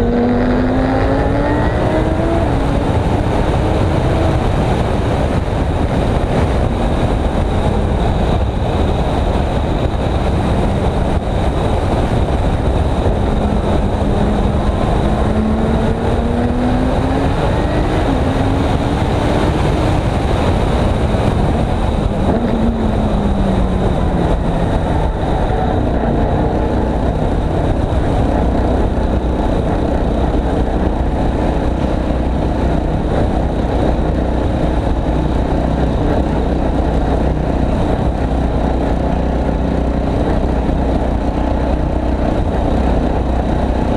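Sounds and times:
race car engine running: 0.0 - 43.9
wind and road noise: 0.0 - 43.9.

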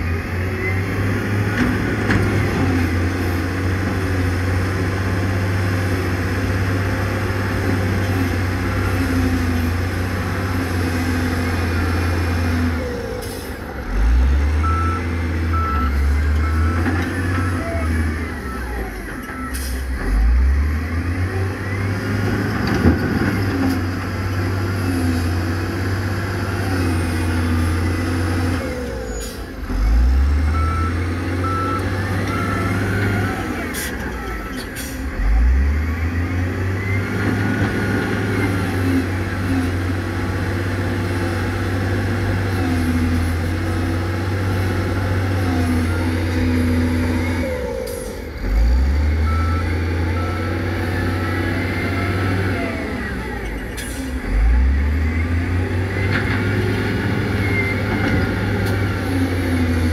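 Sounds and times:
heavy diesel engines revving: 0.0 - 59.9
reversing alarm beeps: 14.5 - 22.2, 28.8 - 37.3, 45.7 - 55.8.

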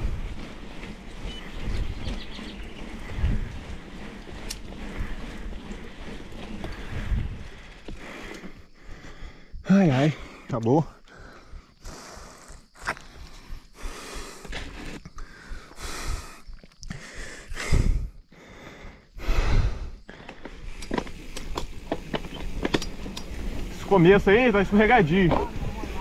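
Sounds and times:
person breathing hard: 3.0 - 20.9.

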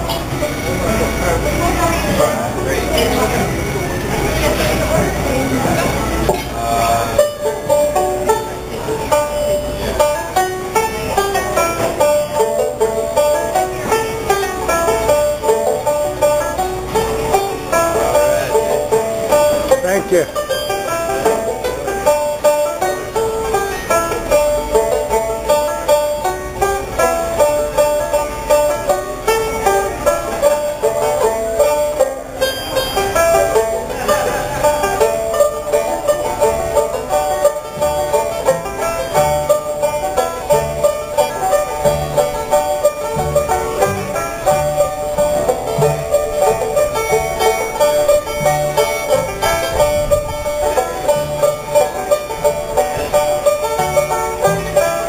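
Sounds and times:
banjos picking rolling runs: 0.0 - 55.0
plucked upright bass: 0.0 - 55.0.

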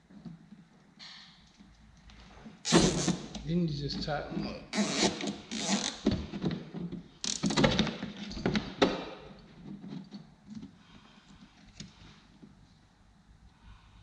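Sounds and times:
zip tie ratcheting tight: 4.8 - 6.0.

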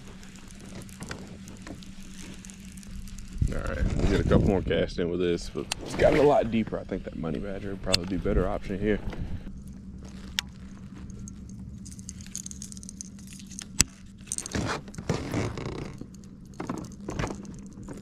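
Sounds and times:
fishing tackle scrapes and rattles: 0.0 - 4.6, 10.0 - 18.0
steady low hum: 0.0 - 18.0.

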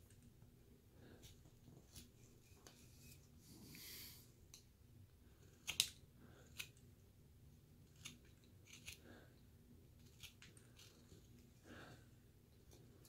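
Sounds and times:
knife carving wood: 5.2 - 7.0, 7.6 - 11.6.

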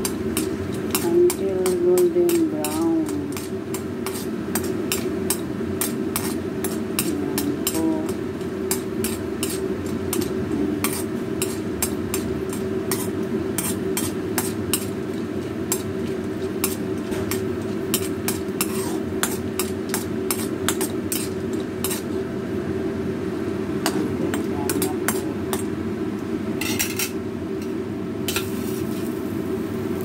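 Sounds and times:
steady low hum: 0.0 - 30.0
metal ladle scraping iron pan: 16.6 - 22.1.

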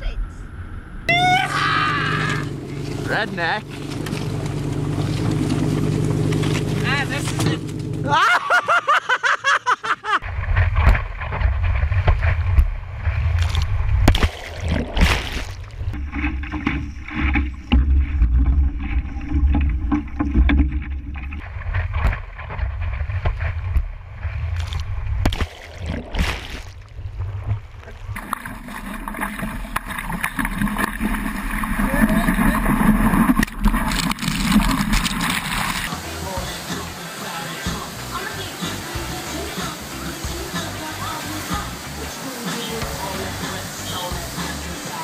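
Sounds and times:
water slapping against hull: 10.2 - 45.0
surf hiss: 35.7 - 45.0.

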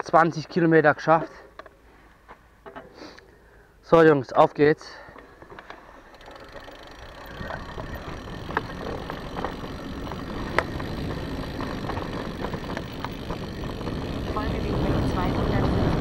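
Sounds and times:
bike clicks and rattles: 5.0 - 16.0
bike tyres rumbling: 5.1 - 16.0
wind on camera: 7.2 - 16.0.

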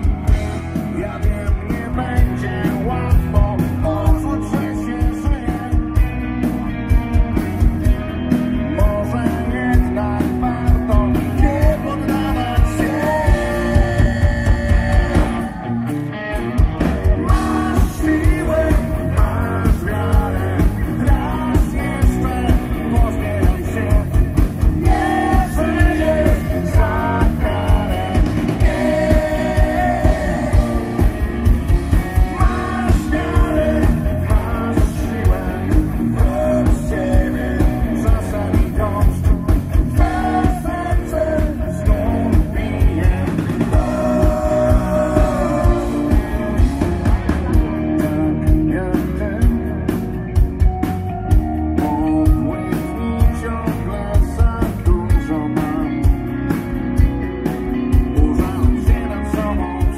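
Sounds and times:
electric guitars: 0.0 - 59.9
man singing into a microphone: 0.8 - 6.1, 8.6 - 15.7, 17.1 - 31.2, 32.2 - 46.7, 47.8 - 50.0, 51.8 - 56.2, 58.0 - 59.9
drum beat: 16.6 - 47.8.

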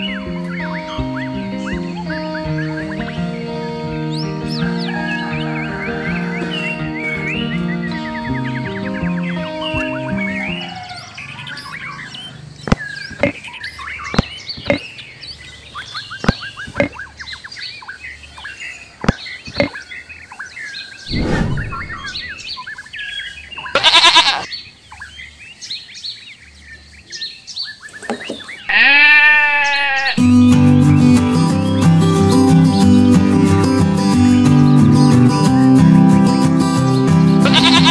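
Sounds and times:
birds chirping: 0.0 - 30.2, 36.7 - 37.9
goat bleating: 23.7 - 24.5, 28.7 - 30.2, 37.4 - 37.9.

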